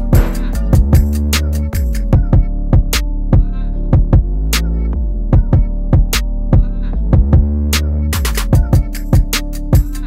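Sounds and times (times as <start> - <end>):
steady drum beat: 0.0 - 2.0
deep bass notes: 0.0 - 8.9.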